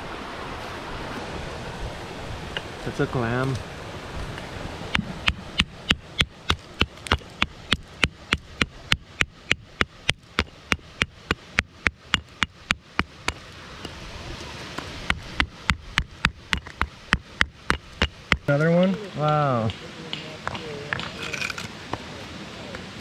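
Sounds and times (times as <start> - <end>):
hammer tapping on stone: 4.9 - 14.0, 15.1 - 21.1.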